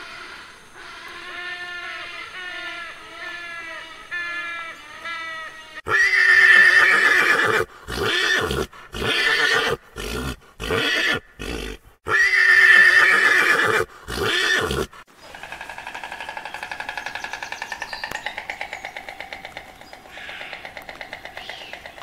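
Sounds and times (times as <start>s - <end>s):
horse neighing: 5.8s - 15.6s.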